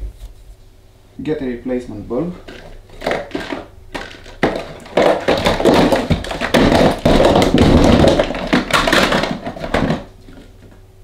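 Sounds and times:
rummaging through clutter: 2.4s - 10.7s.

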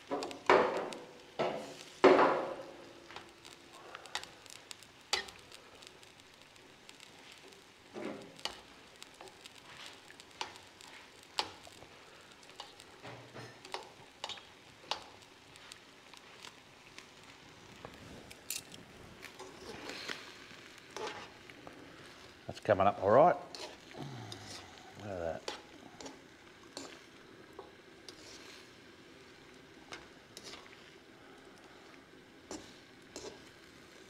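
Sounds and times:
food sizzling in a pan: 0.0s - 34.0s
utensil knocking and scraping in pan: 0.1s - 3.2s, 21.0s - 21.4s.

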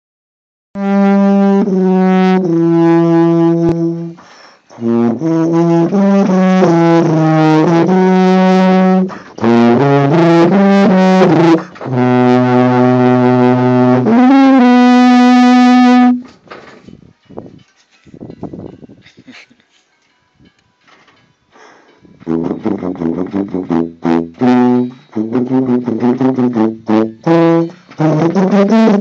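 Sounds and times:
tuba playing slow melody: 0.8s - 16.3s, 22.2s - 29.0s.

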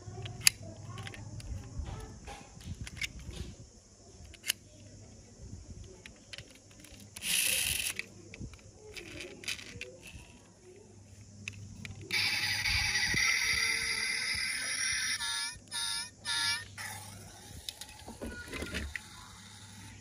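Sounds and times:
toy doors snapping shut: 6.3s - 8.1s, 12.1s - 19.9s.

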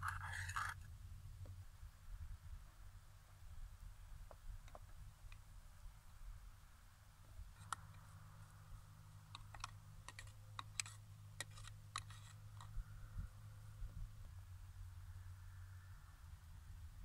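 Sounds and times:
metal spoon scraping pot: 0.0s - 0.8s, 9.3s - 12.7s
steady low rumble: 12.5s - 17.0s.

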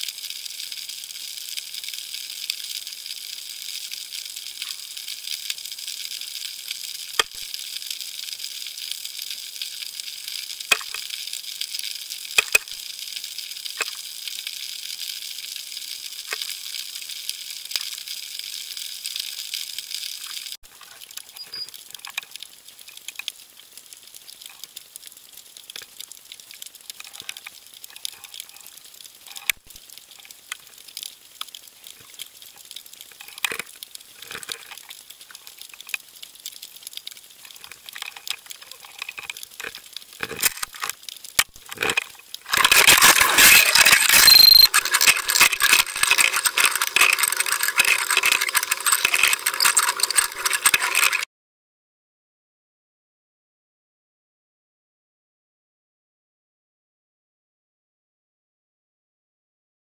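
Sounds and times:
underwater crackling hiss: 0.0s - 44.2s
sharp underwater clicks: 7.1s - 7.5s, 10.7s - 11.1s, 12.4s - 12.8s, 20.2s - 23.6s, 29.3s - 51.2s.

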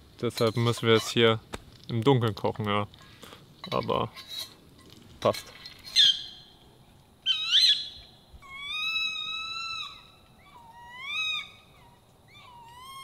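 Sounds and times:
high animal calls: 7.3s - 13.0s.

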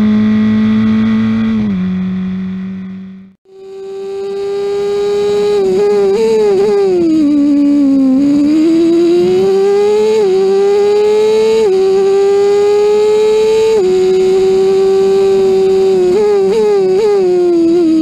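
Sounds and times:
race car engine high-revving: 0.0s - 18.0s.

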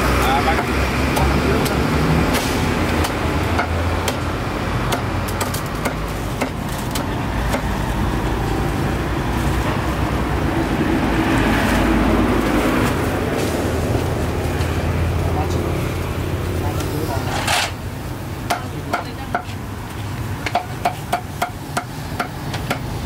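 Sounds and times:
cleaver chopping on wooden block: 0.6s - 4.3s, 4.9s - 7.7s.

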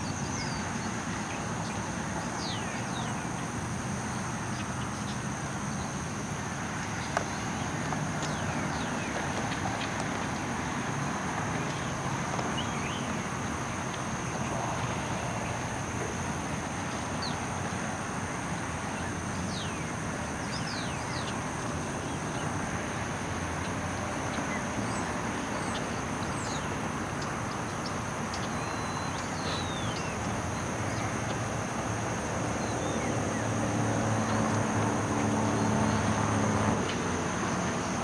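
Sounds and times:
outdoor background rush: 0.0s - 38.0s
vehicle engine hum: 0.0s - 38.0s.

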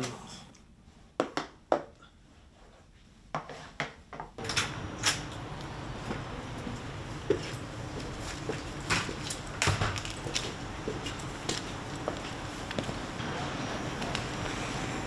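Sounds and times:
low outdoor hum: 4.4s - 15.0s.

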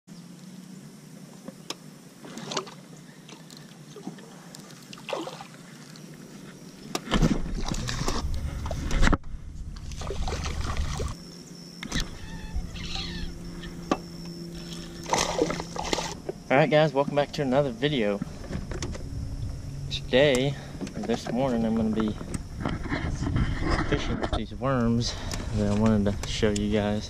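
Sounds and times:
water sloshing against hull: 2.2s - 24.2s
rushing noise with low rumble: 7.4s - 11.2s, 18.2s - 24.8s.

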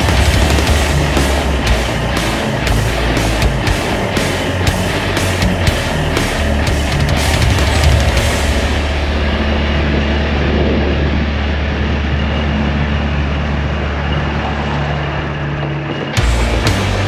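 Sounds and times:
music with sharp drum hits: 0.0s - 9.8s, 16.2s - 17.0s
golf cart driving: 0.0s - 15.6s
wind rumble on microphone: 7.6s - 16.2s.

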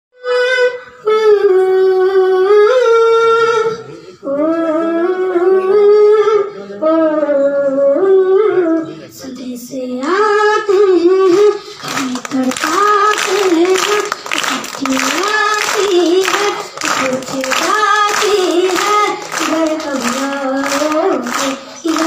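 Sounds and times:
boy singing unaccompanied: 0.2s - 22.0s
crowd clapping: 10.0s - 22.0s.

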